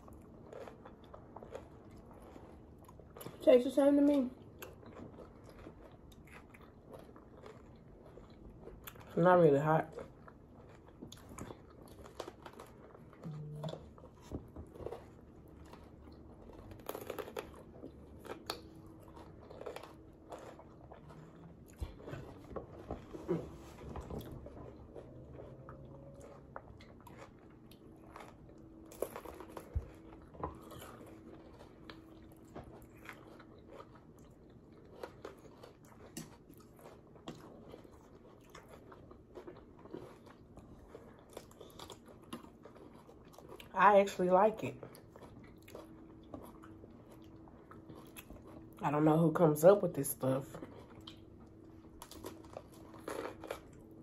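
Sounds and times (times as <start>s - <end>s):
chewing crunchy food: 0.0s - 54.0s
crisp crunches: 14.0s - 21.3s.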